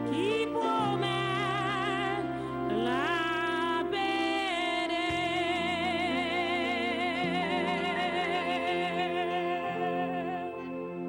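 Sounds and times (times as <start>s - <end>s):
person singing with vibrato: 0.0s - 11.0s
sustained chords: 0.0s - 11.0s.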